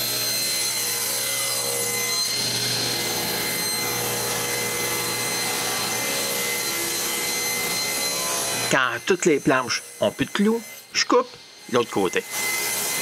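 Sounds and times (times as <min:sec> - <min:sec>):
table saw ripping wood: 0:00.0 - 0:11.1, 0:12.2 - 0:13.0.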